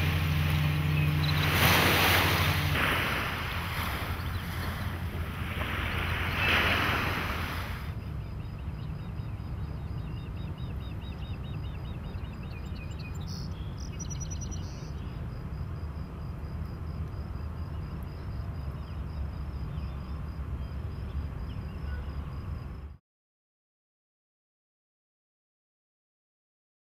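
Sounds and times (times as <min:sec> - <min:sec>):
rush of noise: 0:00.0 - 0:08.0
surf on a beach: 0:00.0 - 0:08.0
wind: 0:00.0 - 0:23.0
high bird chirps: 0:00.6 - 0:01.8.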